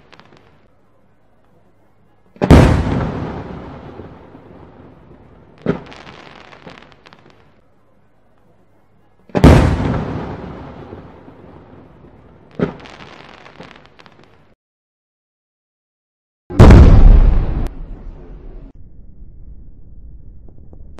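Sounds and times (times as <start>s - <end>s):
firework crackling: 0.0s - 0.7s, 2.4s - 7.6s, 9.3s - 14.6s
firework shell booming: 9.4s - 11.1s, 16.5s - 18.7s.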